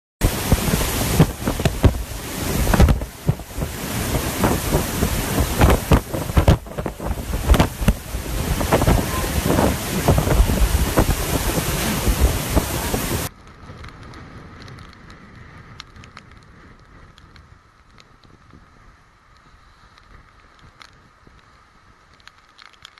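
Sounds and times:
wind buffeting microphone: 0.2 - 19.0
rain: 0.2 - 22.9.

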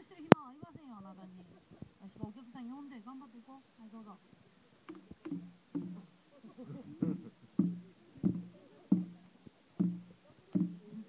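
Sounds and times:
taiko drum beats: 4.9 - 6.1, 7.0 - 11.0.

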